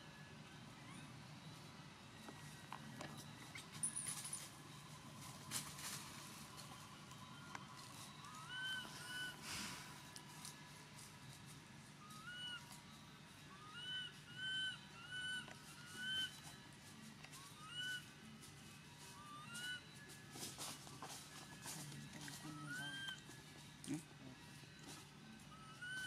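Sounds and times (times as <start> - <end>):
animal whistle-like calls: 8.2 - 10.0, 12.0 - 12.8, 13.4 - 16.6, 17.3 - 18.1, 19.1 - 20.0, 21.6 - 23.2, 25.5 - 26.0.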